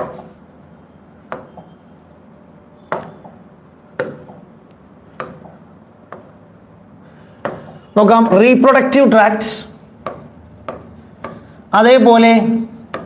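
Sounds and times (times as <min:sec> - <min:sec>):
stylus tapping on screen: 0:01.2 - 0:01.8, 0:02.8 - 0:06.5, 0:07.3 - 0:08.0, 0:10.0 - 0:11.6, 0:12.8 - 0:13.0.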